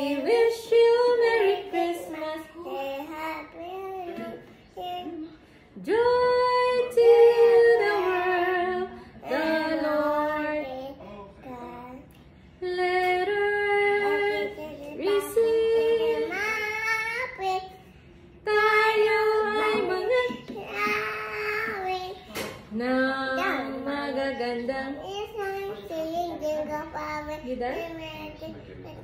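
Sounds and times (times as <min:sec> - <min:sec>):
girl and woman singing: 0:00.0 - 0:29.0.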